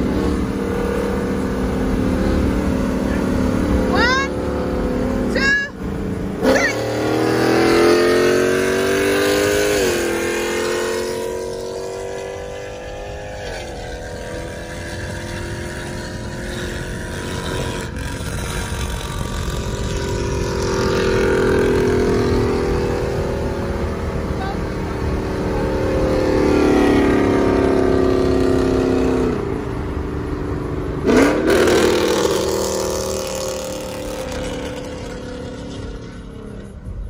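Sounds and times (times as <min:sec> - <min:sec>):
car engine accelerating hard: 0:00.0 - 0:37.0.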